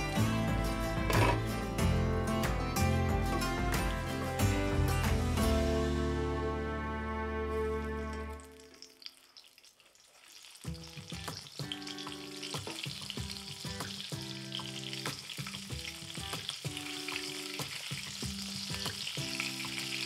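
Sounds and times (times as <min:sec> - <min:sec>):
soft background music: 0:00.0 - 0:08.9, 0:10.7 - 0:20.0
oil sizzling in frying pan: 0:08.4 - 0:20.0.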